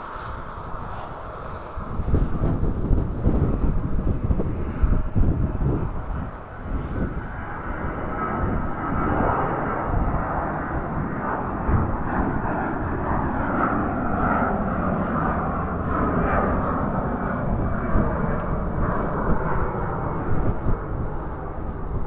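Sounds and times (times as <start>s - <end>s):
jet engines running: 0.0s - 22.0s
wind buffeting microphone: 0.0s - 22.0s.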